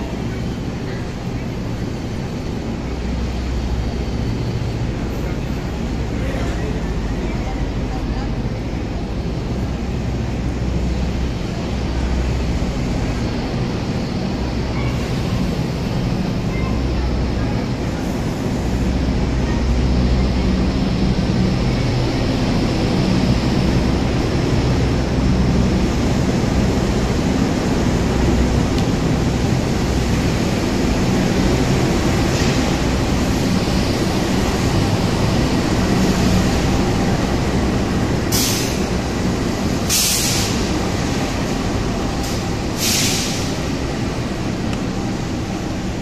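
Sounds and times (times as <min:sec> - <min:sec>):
low diesel hum: 0:00.0 - 0:46.0
train wheels rumbling on rail: 0:00.0 - 0:46.0
short bursts of hiss: 0:42.8 - 0:43.6.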